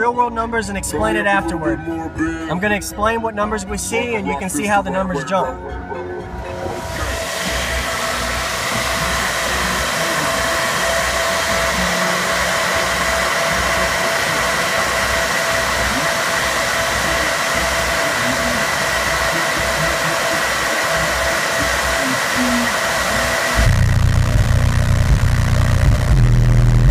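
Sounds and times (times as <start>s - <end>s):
whining fan tones: 0.0s - 26.8s
low bass pulses: 0.6s - 26.9s
cooling fans whooshing: 5.7s - 25.8s.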